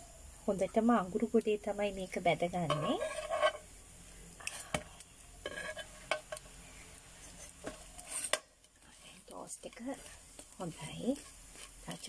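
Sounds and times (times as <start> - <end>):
bread frying light sizzle: 0.0 - 12.0
metal spatula scraping frying pan: 2.6 - 3.7, 5.4 - 6.5, 7.2 - 8.4, 10.8 - 12.0.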